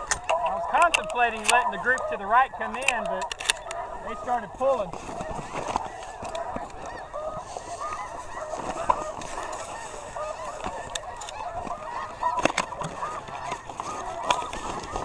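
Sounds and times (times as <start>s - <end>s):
clicks and knocks of gear: 0.0s - 1.6s, 2.8s - 3.8s, 12.4s - 15.0s
geese honking: 0.0s - 15.0s.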